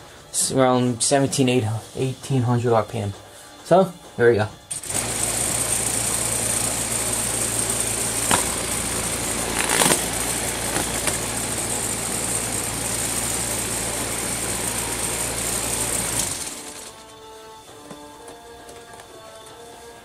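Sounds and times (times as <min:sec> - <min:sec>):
electric motor spinning blade: 0:04.7 - 0:17.1
blade striking paper: 0:08.2 - 0:11.9.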